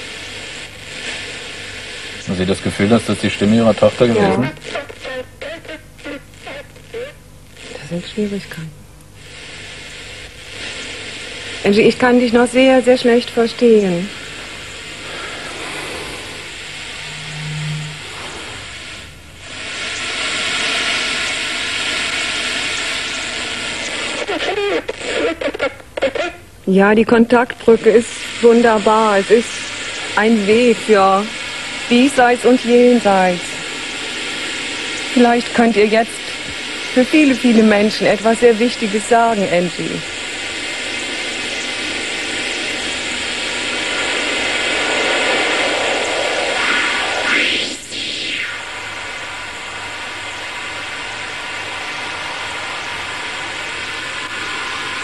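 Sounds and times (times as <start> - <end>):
electronic noise hiss over loudspeaker: 0.0 - 55.0.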